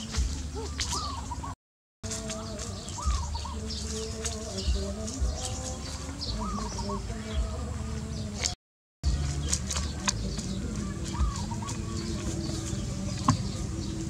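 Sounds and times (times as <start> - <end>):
birds chirping: 0.0 - 14.0
dull low thumps: 2.1 - 14.0.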